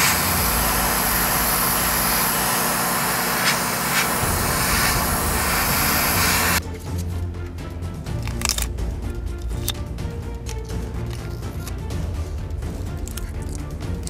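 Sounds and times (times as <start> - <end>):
airbrush spraying hiss: 0.0 - 6.6.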